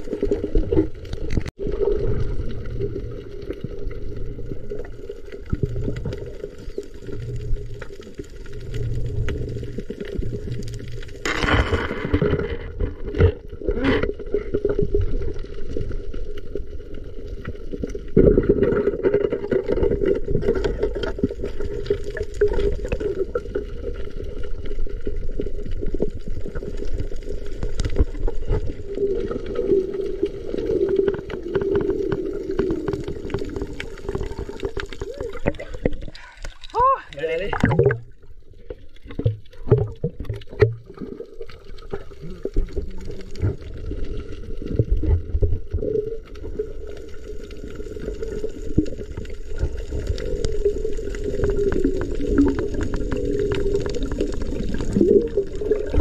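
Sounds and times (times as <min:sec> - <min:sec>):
underwater gurgling and bubbles: 0:00.0 - 0:56.0
sharp underwater burst: 0:37.4 - 0:38.3.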